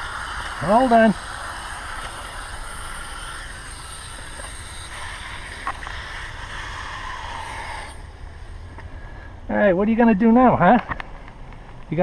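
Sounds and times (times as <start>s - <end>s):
hose nozzle spraying water: 0.0s - 8.6s.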